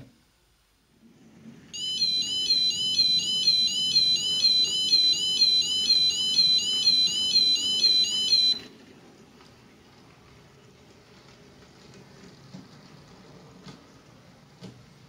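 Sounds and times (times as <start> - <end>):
electronic warbling crossing alarm: 1.8 - 8.7.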